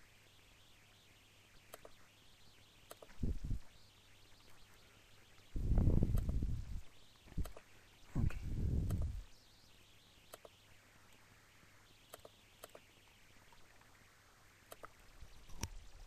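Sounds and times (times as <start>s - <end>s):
faint background hiss: 0.0s - 16.0s
computer mouse clicking: 1.7s - 2.0s, 2.9s - 3.2s, 6.1s - 6.4s, 7.3s - 7.7s, 8.8s - 9.2s, 10.3s - 10.6s, 12.1s - 12.9s, 14.7s - 15.8s.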